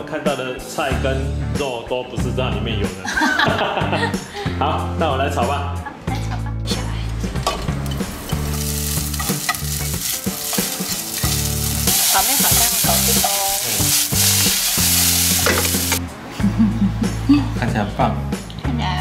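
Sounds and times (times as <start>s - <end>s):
noodles sizzling in a pan: 8.2s - 16.0s.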